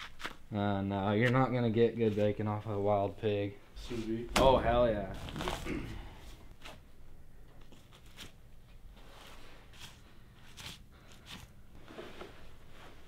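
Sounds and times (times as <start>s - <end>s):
low steady hum: 2.5s - 13.0s.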